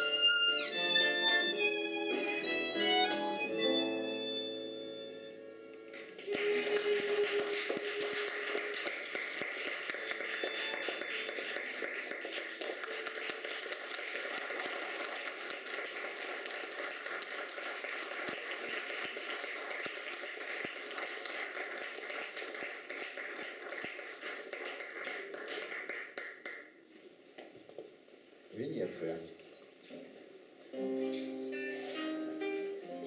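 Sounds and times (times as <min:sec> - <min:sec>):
audience applauding: 0:05.9 - 0:26.8.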